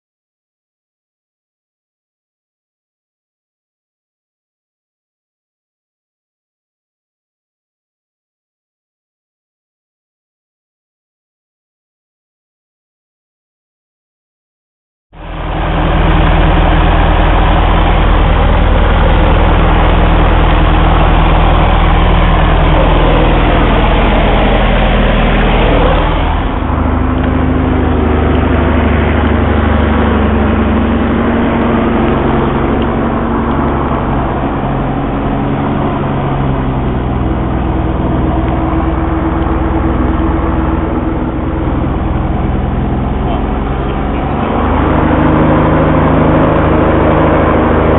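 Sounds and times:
propeller aircraft engine: 15.2s - 47.9s.

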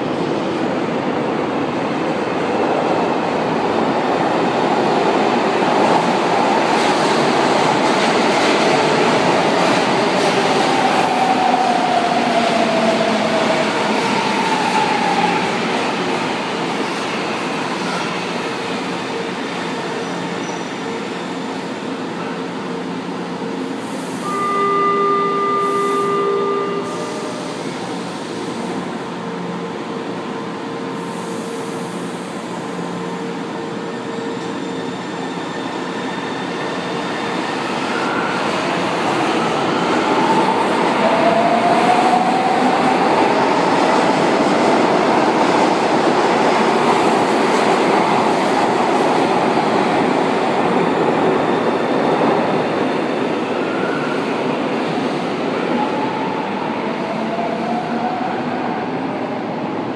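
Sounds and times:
buzzing tone: 24.3s - 27.4s.

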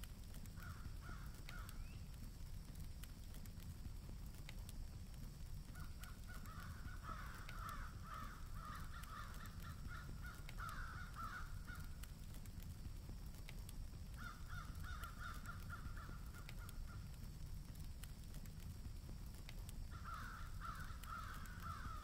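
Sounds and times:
steady low rumble: 0.0s - 22.0s
crows cawing: 0.5s - 1.8s, 5.7s - 12.0s, 14.1s - 17.1s, 19.9s - 22.0s.

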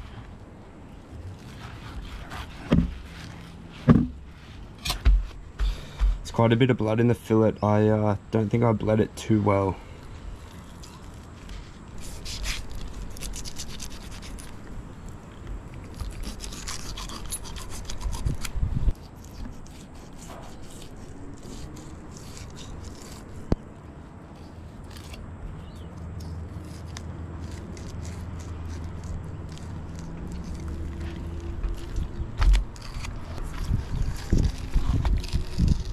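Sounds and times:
knife rasping through fish scales: 1.4s - 5.2s, 10.4s - 14.6s, 16.0s - 23.5s
heavy thump: 3.9s - 4.2s, 4.8s - 6.3s.

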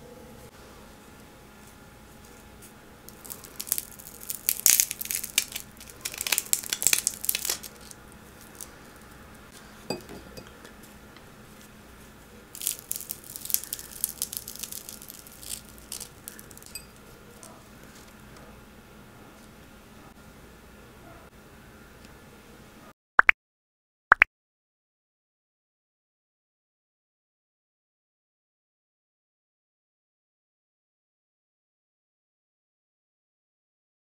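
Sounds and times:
crispy donut crackling as torn: 3.0s - 9.4s, 12.6s - 18.1s.

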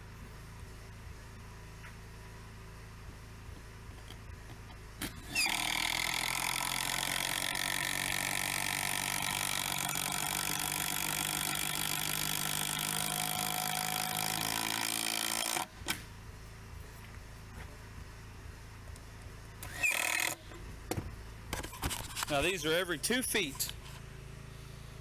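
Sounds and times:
cordless drill driving screw: 5.3s - 15.7s, 19.6s - 20.4s.

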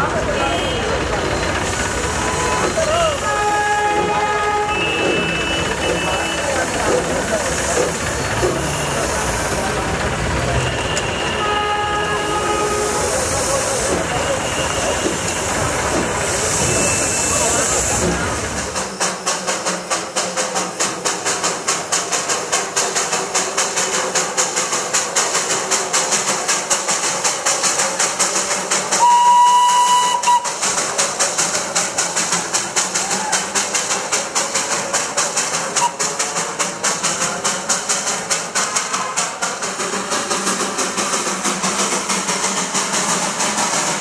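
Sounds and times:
steam locomotive chuffing: 0.0s - 44.0s
steam whistle blast: 2.1s - 6.6s, 10.6s - 15.5s, 29.0s - 30.6s, 35.8s - 36.1s.

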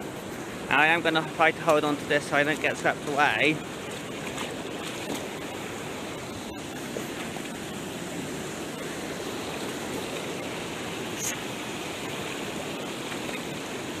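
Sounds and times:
floodwater rushing: 0.0s - 14.0s
boots sloshing through water: 2.5s - 8.8s.

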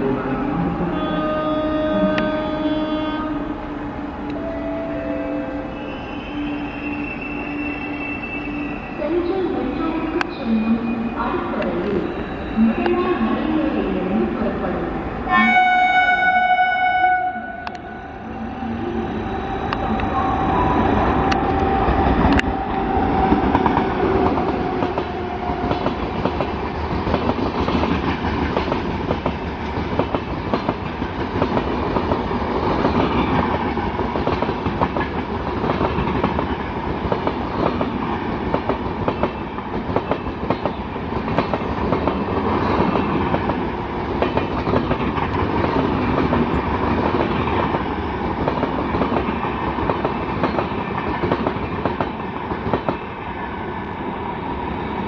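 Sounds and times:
train horn: 0.8s - 9.0s, 15.3s - 18.2s
train rushing rumble: 17.6s - 55.0s.

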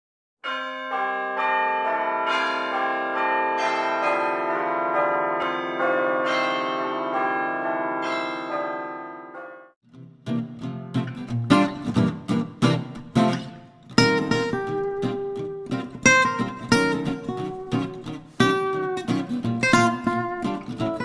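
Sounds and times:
church bells pealing: 0.4s - 9.8s, 14.0s - 21.0s
acoustic guitar strumming: 9.9s - 21.0s.

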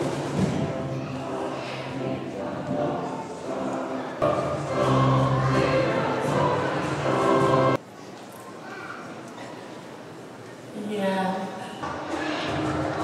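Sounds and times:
choir singing: 0.0s - 7.8s.

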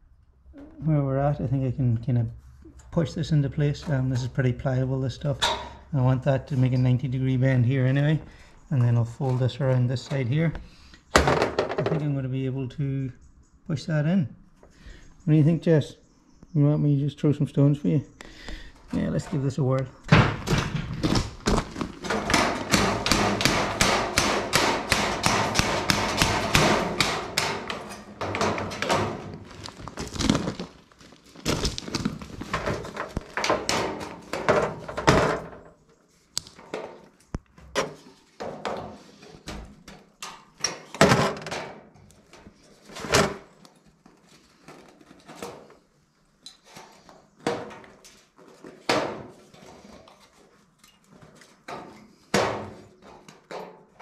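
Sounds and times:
hammer knocking sheet steel: 22.1s - 29.2s.

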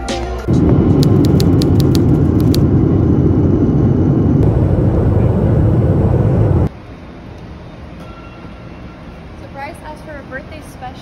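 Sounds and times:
jet engines rumbling in cabin: 0.4s - 7.9s
rushing air: 0.5s - 6.7s.

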